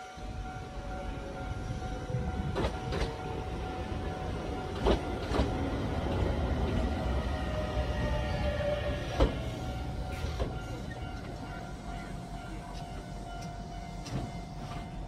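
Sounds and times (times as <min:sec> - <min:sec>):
train rumble: 0:00.0 - 0:15.0
train wheels clacking over rail joints: 0:02.4 - 0:03.3, 0:04.6 - 0:06.8.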